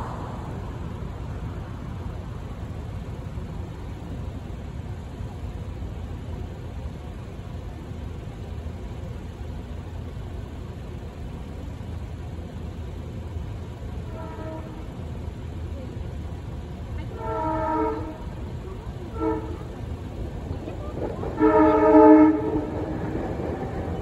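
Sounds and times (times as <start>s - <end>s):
idling car traffic rumble: 0.0s - 24.0s
train air horn: 14.0s - 15.0s, 17.0s - 19.9s, 21.1s - 23.2s.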